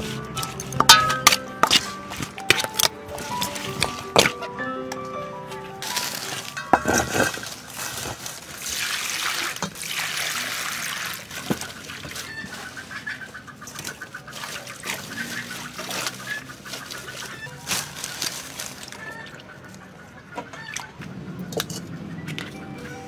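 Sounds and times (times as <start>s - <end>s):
small knocks in metal bowl: 0.8s - 1.8s
leaves rustling and crackling: 5.8s - 19.8s.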